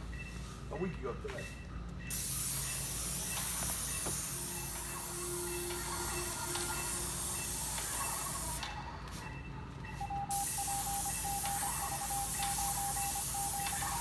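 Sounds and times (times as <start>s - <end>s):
paint sprayer hissing: 2.1s - 9.2s, 10.3s - 14.0s.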